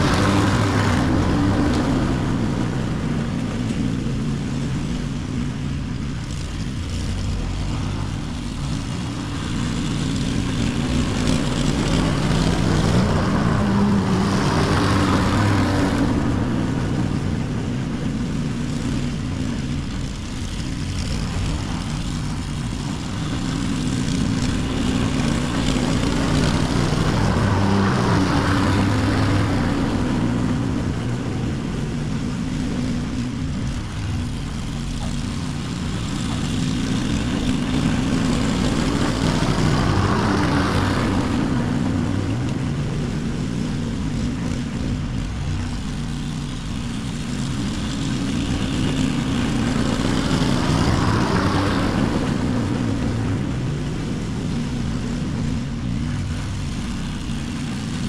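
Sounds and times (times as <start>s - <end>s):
lawn mower running: 0.0s - 58.0s.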